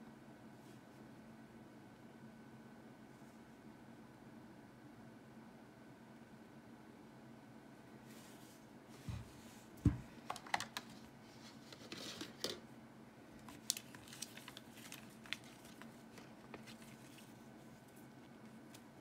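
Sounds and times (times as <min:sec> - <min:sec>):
paper rustling: 0:13.4 - 0:19.0.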